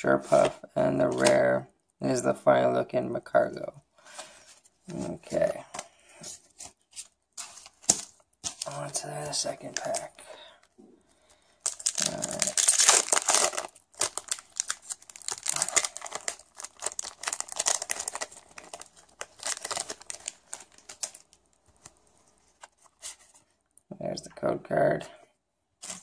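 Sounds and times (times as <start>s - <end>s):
foil wrapper tearing and crinkling: 11.6s - 21.9s.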